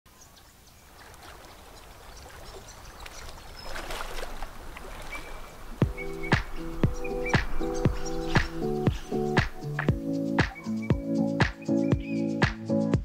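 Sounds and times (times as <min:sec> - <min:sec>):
rushing water-like ambience: 0:00.3 - 0:11.1
background music with chords: 0:05.8 - 0:13.0.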